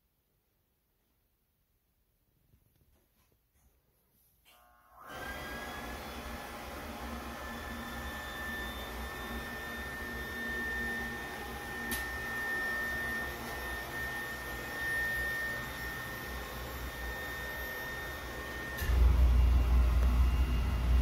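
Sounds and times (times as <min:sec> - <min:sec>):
high-pitched whine: 0:07.4 - 0:21.0
click: 0:11.9 - 0:12.1.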